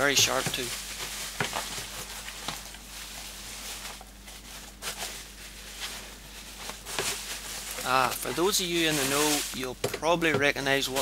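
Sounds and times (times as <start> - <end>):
bubble wrap rustling and crinkling: 0.0 - 11.0.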